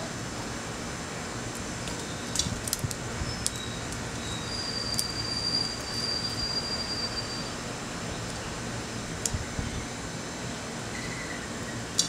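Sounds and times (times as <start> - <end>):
thin high whistle: 3.2 - 7.6.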